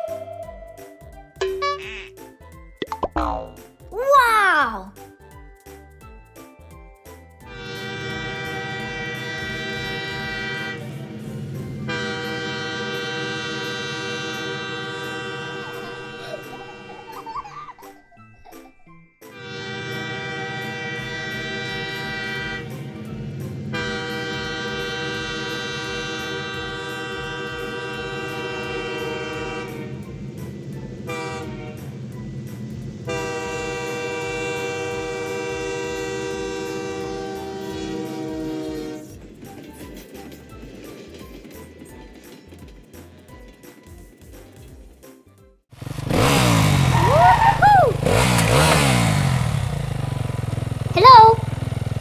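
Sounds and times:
toy train horn: 7.4 - 17.3, 19.2 - 30.2, 31.0 - 32.0, 33.0 - 39.2.

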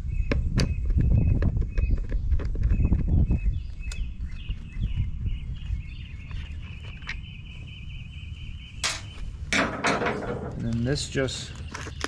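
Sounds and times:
bird chirping rapidly: 0.0 - 9.5.

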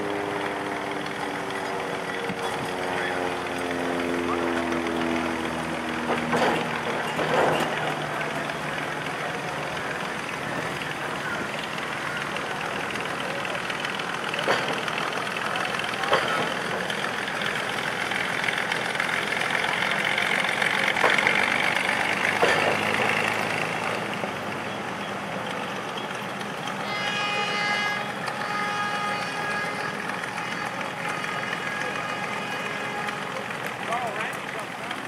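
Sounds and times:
rail car engine running: 0.0 - 35.0.

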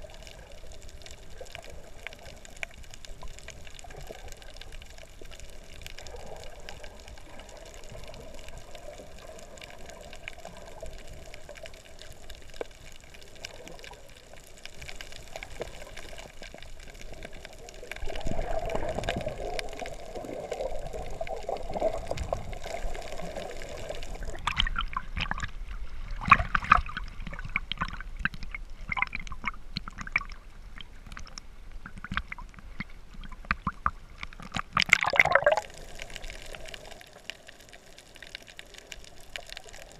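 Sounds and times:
muffled underwater rush: 0.0 - 39.9
water splashing and lapping: 18.0 - 35.7.

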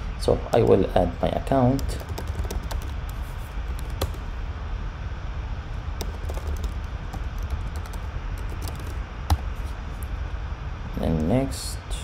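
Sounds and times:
steady low hum: 0.0 - 12.0
keyboard keystrokes: 1.8 - 4.2, 6.0 - 9.4.

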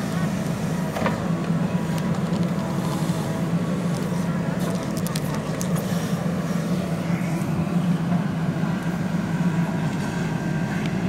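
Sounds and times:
diesel engine running under load: 0.0 - 11.0.

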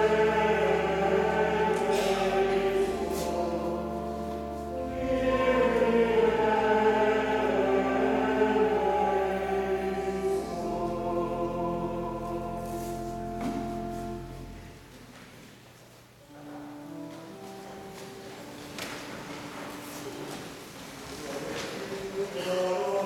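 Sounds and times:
church choir singing: 0.0 - 15.0, 21.3 - 23.0
low organ notes: 0.0 - 15.0.

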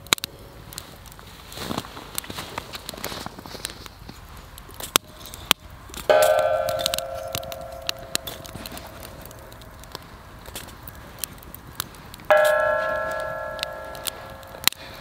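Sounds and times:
small clicks and crackles: 0.0 - 15.0
metal cookware ringing: 6.1 - 9.6, 12.3 - 15.0.

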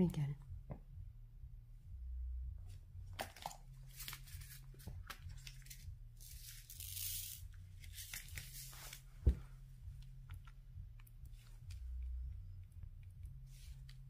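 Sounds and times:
adhesive strip hissing peel: 6.4 - 9.0
low thump: 9.2 - 9.5.

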